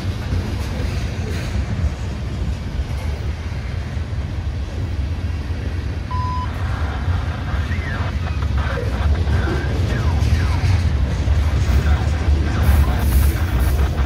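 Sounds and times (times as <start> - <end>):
short beep: 6.1 - 6.6.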